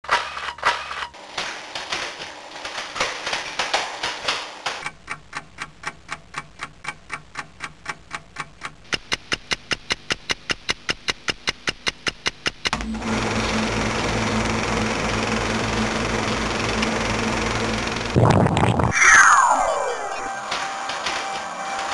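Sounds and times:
rapid mechanical clicking: 0.1 - 18.2
machine hum with low drone: 12.7 - 21.9.

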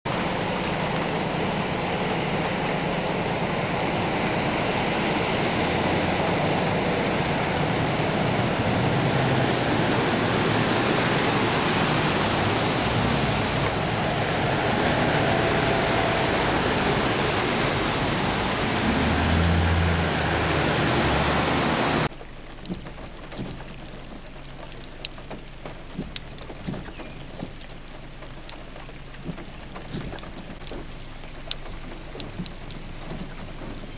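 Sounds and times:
water spray rushing: 0.1 - 22.1
low engine hum: 0.1 - 33.9
steady rain: 0.1 - 33.9
water drips: 0.1 - 33.9.

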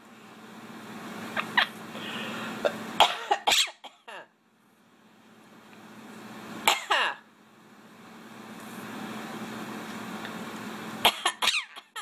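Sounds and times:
parrot squawking: 1.4 - 1.8, 3.5 - 3.8, 11.3 - 12.0.

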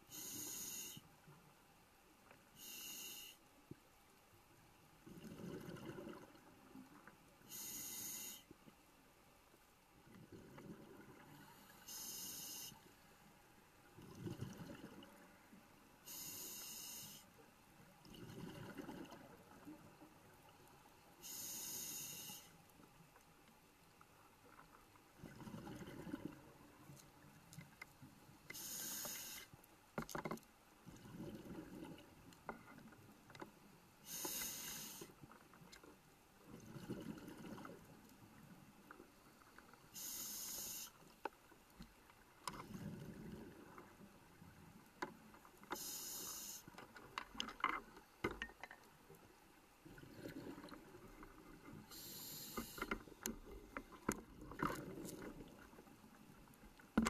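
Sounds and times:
diver inhaling through regulator: 0.1 - 1.1, 2.6 - 3.4, 7.5 - 8.5, 11.4 - 12.8, 16.0 - 17.3, 21.2 - 22.6, 28.5 - 29.5, 34.0 - 35.1, 39.9 - 41.0, 45.8 - 46.7, 51.9 - 53.1
gurgle of exhaled bubbles: 5.1 - 6.4, 18.1 - 19.6.

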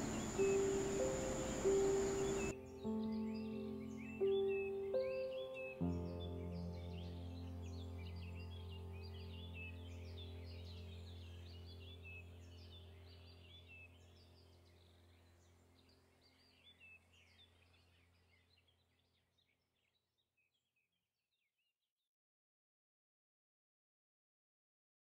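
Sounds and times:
low steady drone: 0.0 - 2.6
bird-like chirps: 0.0 - 5.9.

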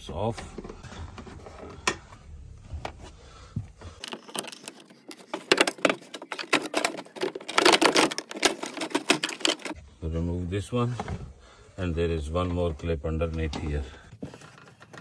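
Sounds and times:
plastic clips clicking and rattling: 4.0 - 9.8.

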